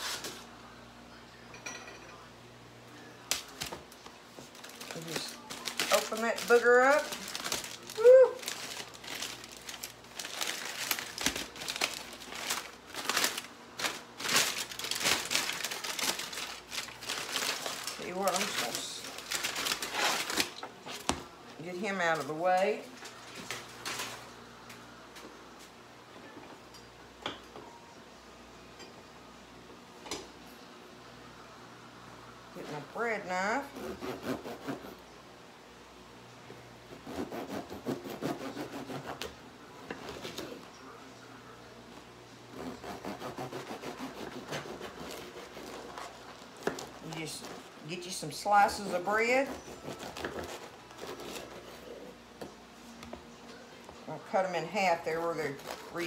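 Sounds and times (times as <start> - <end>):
aluminium foil crinkling: 3.3 - 21.1, 21.7 - 24.3, 43.4 - 52.0, 55.0 - 56.0
bread knife sawing through loaf: 33.7 - 35.0, 36.9 - 39.3, 42.5 - 47.6.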